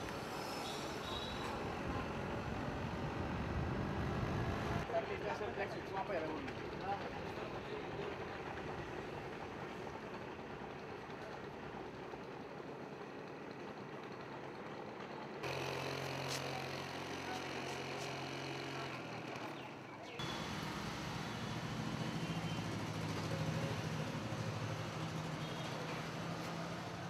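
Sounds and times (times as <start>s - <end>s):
street traffic noise: 0.0s - 27.0s
vehicle engine humming: 20.2s - 27.0s.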